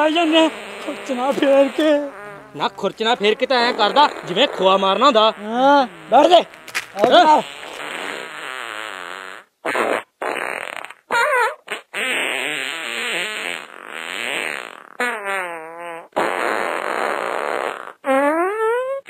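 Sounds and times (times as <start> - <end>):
comic fart sounds: 0.0 - 19.0.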